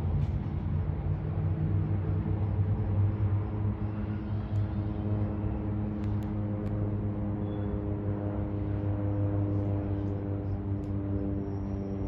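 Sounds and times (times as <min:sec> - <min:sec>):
propeller plane droning overhead: 0:00.0 - 0:12.0.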